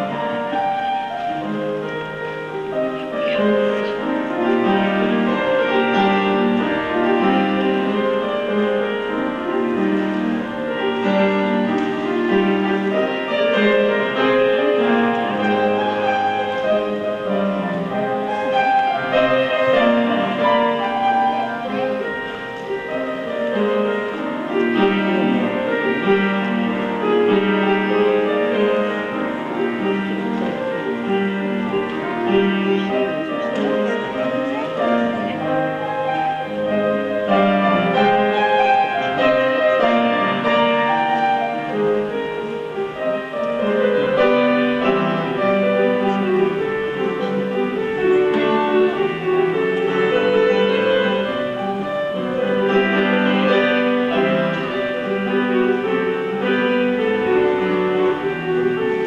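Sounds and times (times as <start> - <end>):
dance tune on piano and fiddle: 0.0 - 59.0.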